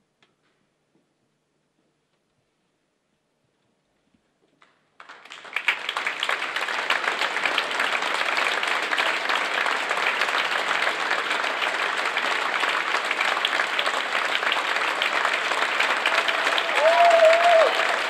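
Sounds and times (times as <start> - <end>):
audience applauding: 5.0 - 18.0.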